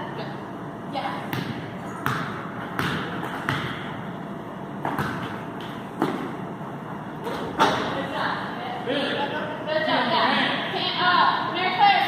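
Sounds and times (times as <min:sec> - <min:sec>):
basketballs bouncing on gym floor: 0:01.0 - 0:04.1, 0:04.8 - 0:06.5.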